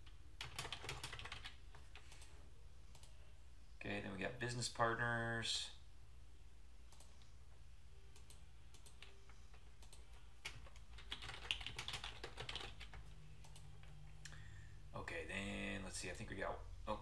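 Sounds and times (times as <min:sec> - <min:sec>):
typing on computer keyboard: 0:00.4 - 0:02.3, 0:08.1 - 0:13.9.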